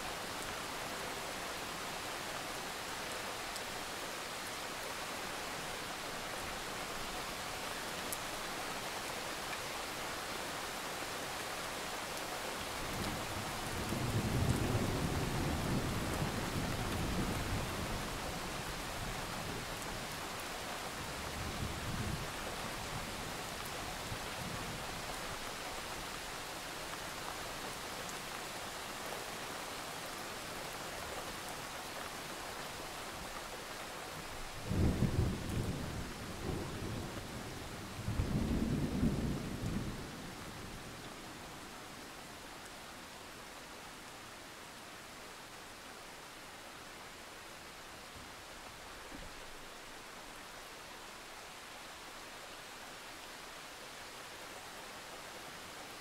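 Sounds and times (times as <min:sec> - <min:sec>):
heavy rain hissing: 0:00.0 - 0:44.2.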